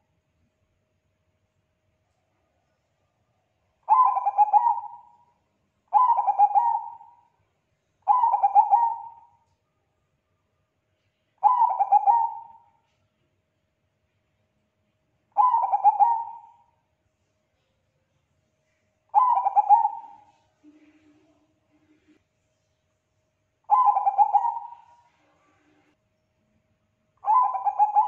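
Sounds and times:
dove cooing: 3.9 - 5.2, 5.9 - 7.2, 8.0 - 9.4, 11.4 - 12.7, 15.4 - 16.7, 19.1 - 21.0, 23.7 - 25.6, 27.2 - 28.0.

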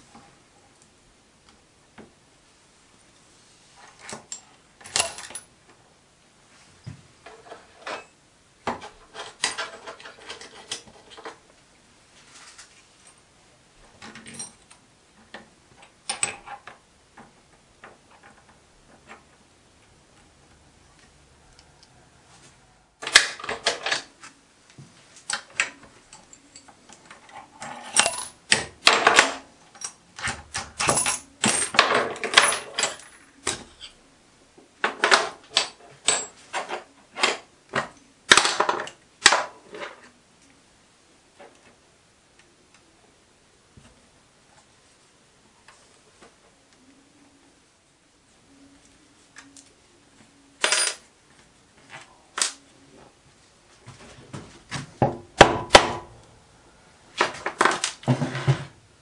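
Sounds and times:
small metal parts clicking: 25.2 - 34.0.

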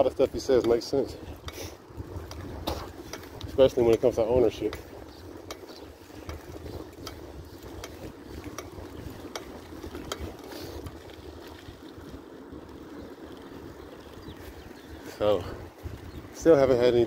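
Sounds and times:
bicycle rumble: 0.0 - 17.0
wind hiss: 0.0 - 17.0
light clicks from bike: 0.4 - 1.6, 2.2 - 11.8.

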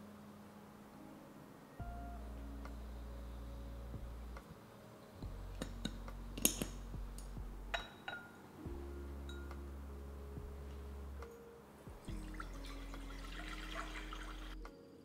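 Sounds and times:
soft background music: 0.0 - 15.0.

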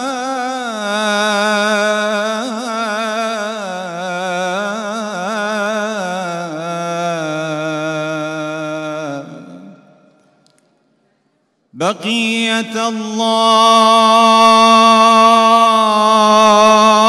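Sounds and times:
man chanting solo: 11.8 - 17.0.

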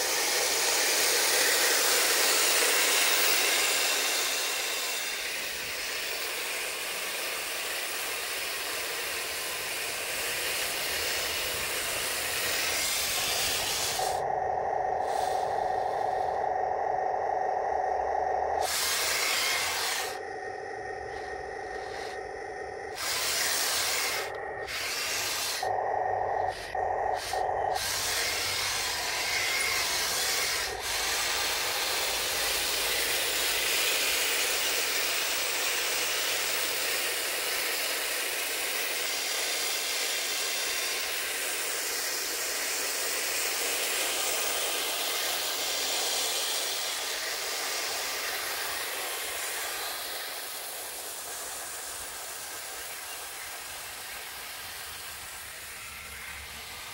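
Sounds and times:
speaker humming: 11.5 - 29.6.

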